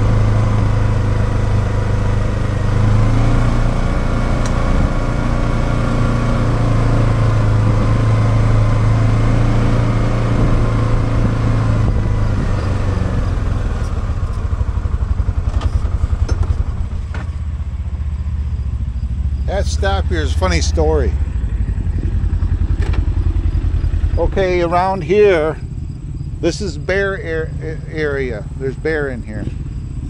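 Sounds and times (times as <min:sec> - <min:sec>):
atv engine running: 0:00.0 - 0:30.0.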